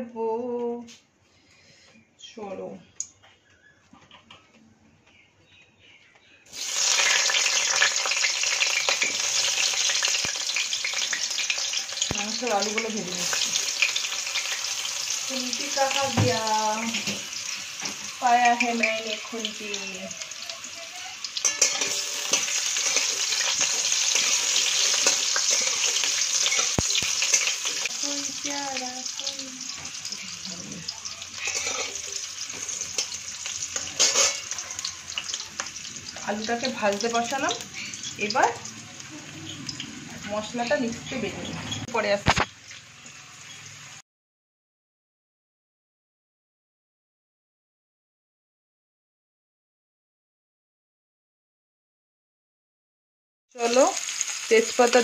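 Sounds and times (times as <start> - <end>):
potatoes sizzling in hot oil: 6.5 - 44.0, 53.6 - 55.0.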